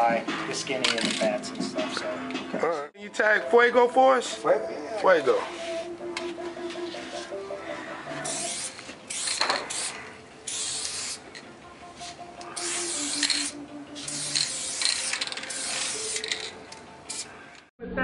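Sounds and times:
spray paint can hissing: 8.2s - 11.2s, 12.0s - 17.6s.

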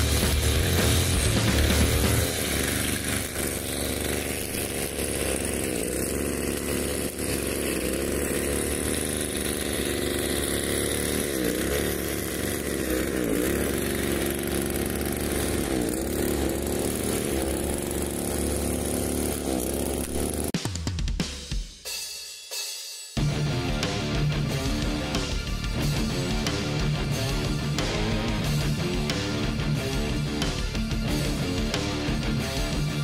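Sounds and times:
string trimmer engine cutting: 0.0s - 20.6s.

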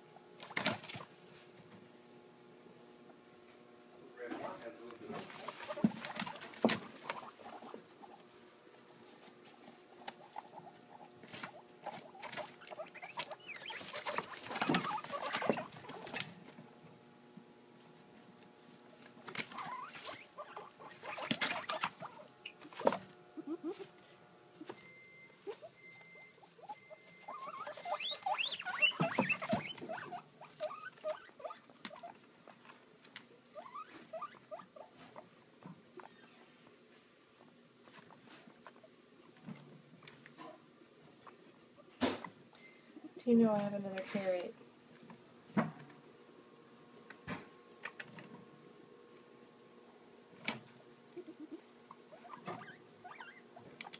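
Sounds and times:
guinea pig squeaks: 0.4s - 1.1s, 5.1s - 8.3s, 9.4s - 16.3s, 19.2s - 23.9s, 24.6s - 32.8s, 33.5s - 35.2s, 35.9s - 36.6s, 41.2s - 42.4s, 51.1s - 53.9s
guinea pigs scrabbling in bedding: 0.4s - 1.7s, 4.2s - 42.4s, 50.3s - 53.9s.

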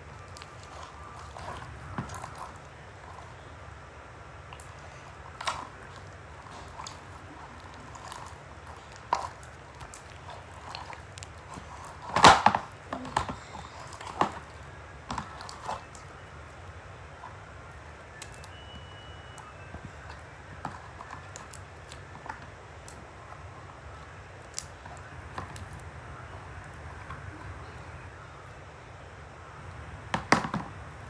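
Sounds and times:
slime squishing: 0.0s - 28.7s
faint steady hum: 0.0s - 31.0s
plastic bag crackling: 4.4s - 16.8s.

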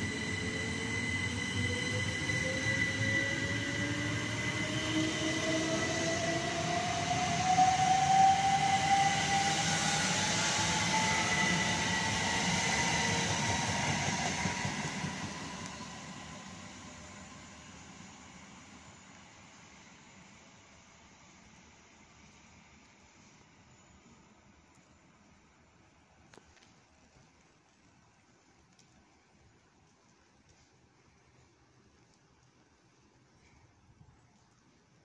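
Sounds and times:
wheels rumbling on rails: 0.0s - 20.4s
electric train motor whine: 0.0s - 24.2s.

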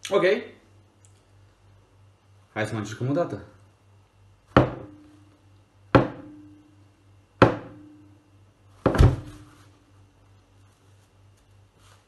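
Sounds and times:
object knocking on tabletop: 4.6s - 5.0s, 6.0s - 6.3s
hard slam on table: 8.8s - 9.5s.

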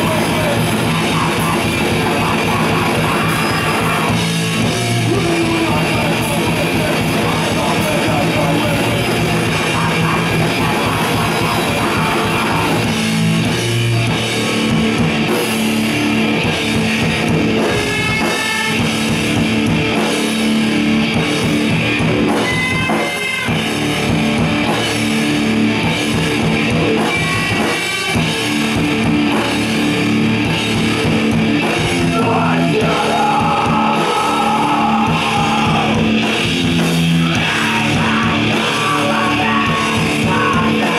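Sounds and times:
person singing: 0.0s - 12.9s, 31.8s - 36.2s, 37.0s - 40.9s
drum kit: 0.0s - 40.9s
electric guitar: 0.0s - 40.9s.

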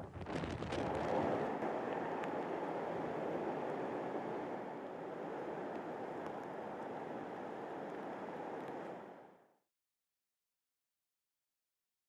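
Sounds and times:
wind buffeting microphone: 0.0s - 9.2s.

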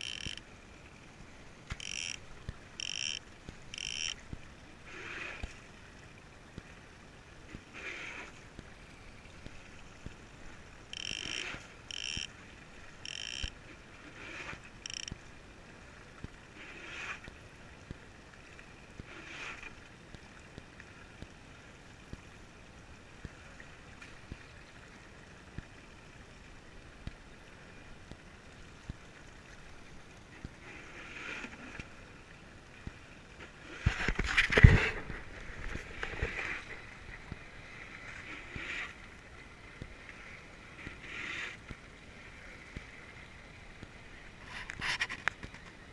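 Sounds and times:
fishing reel buzzing: 0.0s - 0.4s, 1.7s - 2.2s, 2.8s - 4.2s, 10.9s - 12.3s, 13.0s - 13.6s, 14.3s - 15.2s
faint water and wind noise: 0.0s - 45.9s.

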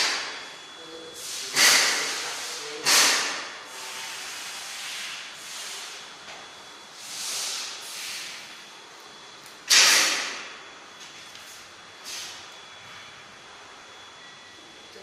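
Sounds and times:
hissing bursts: 1.2s - 6.0s.

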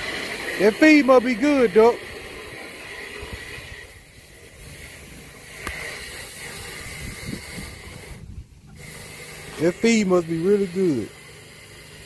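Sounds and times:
faint steady hiss: 0.0s - 12.0s
wind rumble on microphone: 6.5s - 8.8s.

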